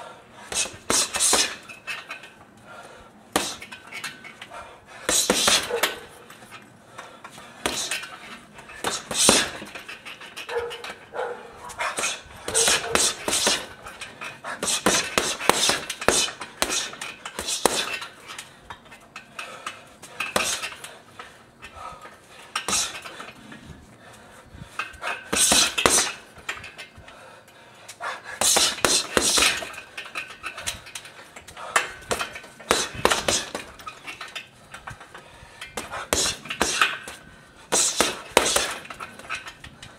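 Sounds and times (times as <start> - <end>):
boxing gloves hitting heavy bag: 0.5 - 1.7, 3.3 - 3.7, 5.0 - 6.2, 7.6 - 8.1, 8.8 - 10.0, 11.8 - 13.8, 14.5 - 18.0, 20.2 - 20.7, 25.2 - 26.4, 28.4 - 29.8, 31.8 - 33.9, 35.8 - 39.3.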